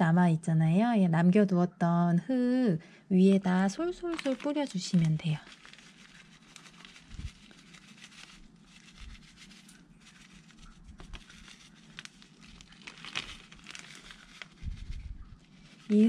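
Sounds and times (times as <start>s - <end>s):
plastic bag crinkling: 3.5s - 16.0s
soil pattering: 3.5s - 16.0s.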